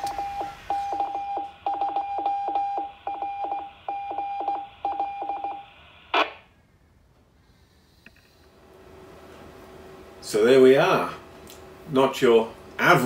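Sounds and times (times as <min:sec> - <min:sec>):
morse code tone: 0:00.0 - 0:05.7.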